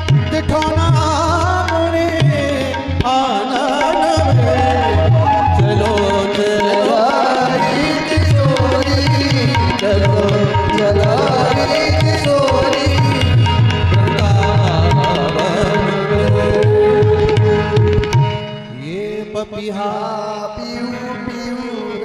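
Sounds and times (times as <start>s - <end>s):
tabla playing fast rhythm: 0.0s - 22.0s
sliding melody line: 3.1s - 18.9s.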